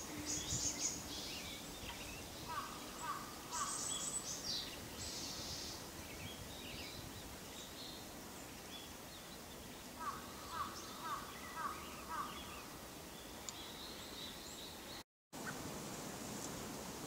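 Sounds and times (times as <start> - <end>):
thrush singing soft subsong: 0.0 - 5.9.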